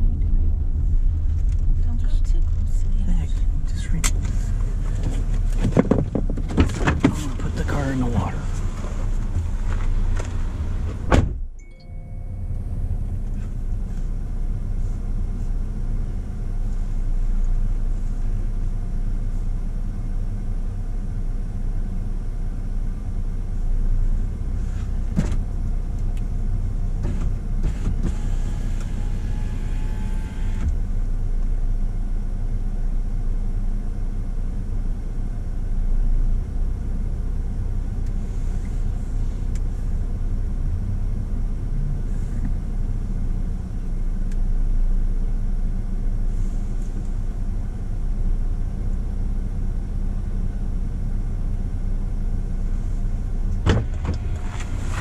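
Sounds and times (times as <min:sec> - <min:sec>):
car engine idling: 0:00.0 - 0:55.0
car door shutting: 0:04.0 - 0:11.8, 0:25.1 - 0:25.5, 0:27.0 - 0:30.8, 0:53.5 - 0:55.0.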